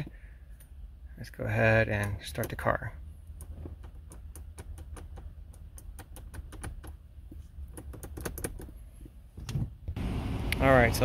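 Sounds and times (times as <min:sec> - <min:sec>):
car relays clicking: 0:03.3 - 0:07.0.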